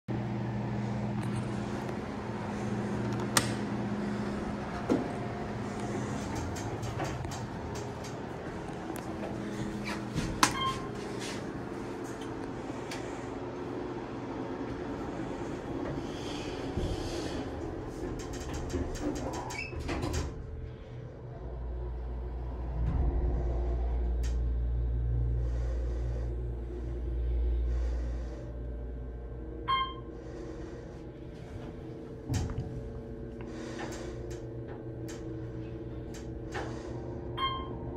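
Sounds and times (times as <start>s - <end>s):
low hum: 0.1s - 37.9s
elevator doors sliding open: 1.3s - 20.8s, 31.2s - 37.9s.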